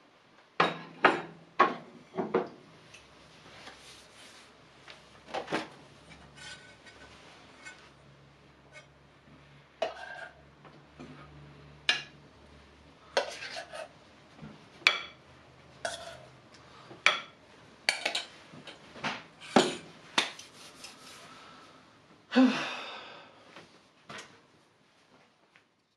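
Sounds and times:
metal utensil clinking on bowl: 17.9 - 18.3.

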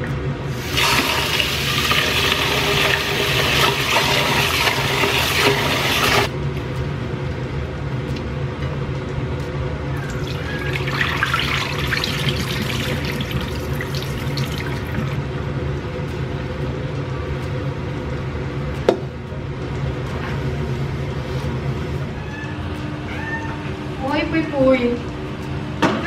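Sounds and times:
steady low hum: 0.0 - 26.0
water poured into a sink: 0.6 - 6.3, 10.2 - 15.2.

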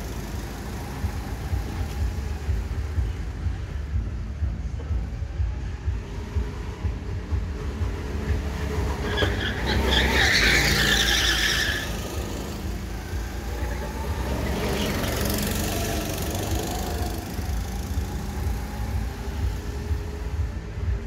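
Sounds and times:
go-kart engines running: 0.0 - 21.0
kart tyres squealing and skidding: 6.2 - 19.6.

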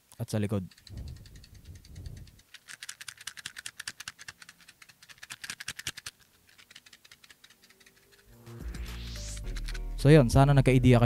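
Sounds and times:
matchbox rattling: 0.5 - 8.4, 9.0 - 9.9.

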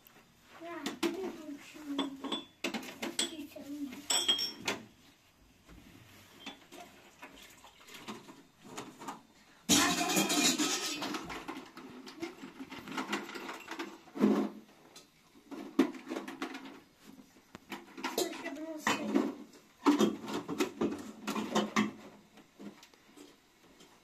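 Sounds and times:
metal kettle and glassware clinking: 2.0 - 2.6, 4.1 - 4.7, 9.7 - 11.2.

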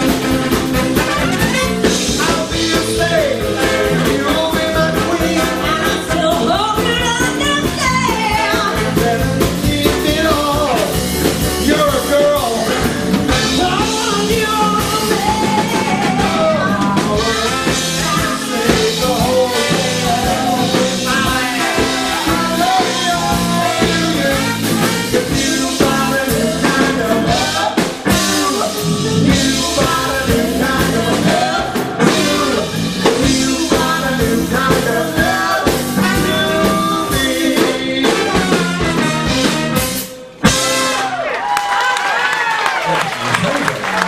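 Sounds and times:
live band playing: 0.0 - 44.0
man and woman singing duet: 1.8 - 38.8.

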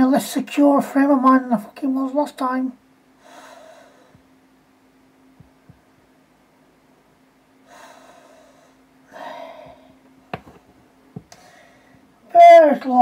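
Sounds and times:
man breathing heavily: 3.2 - 4.3, 7.6 - 10.0, 11.3 - 12.1.

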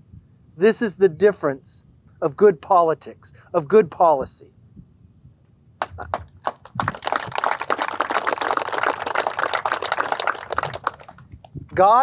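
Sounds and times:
crowd applauding: 5.9 - 11.3.

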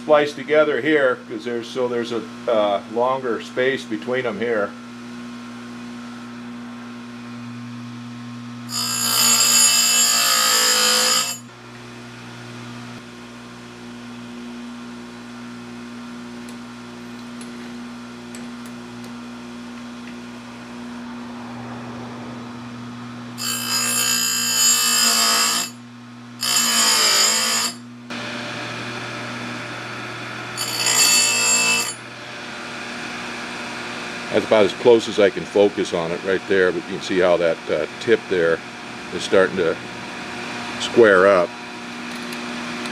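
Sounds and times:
grinder motor hum: 0.1 - 42.9
grinding wheel on chain tooth: 8.7 - 11.5, 23.4 - 25.8, 30.6 - 32.0.

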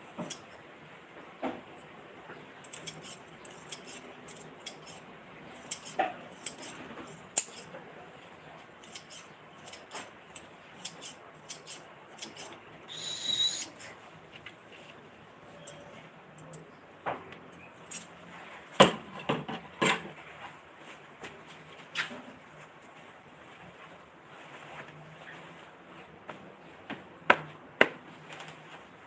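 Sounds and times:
brief high squeak: 12.9 - 13.9.

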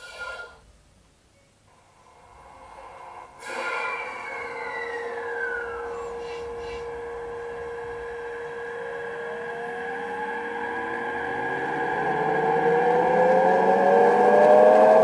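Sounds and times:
electrical hum: 0.0 - 15.0
rising inverter whine: 1.7 - 15.0
falling tone: 3.0 - 15.0.

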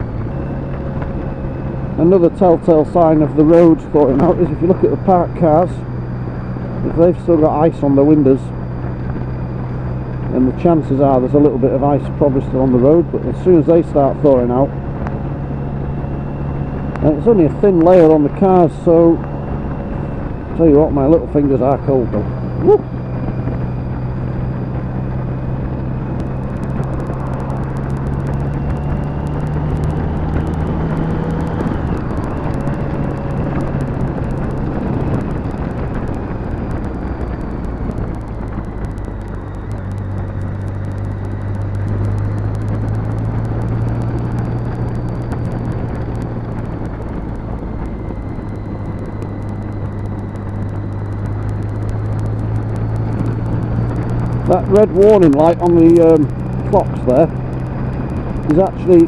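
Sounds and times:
motorcycle engine running: 0.0 - 59.0
wind and road noise: 0.0 - 59.0.

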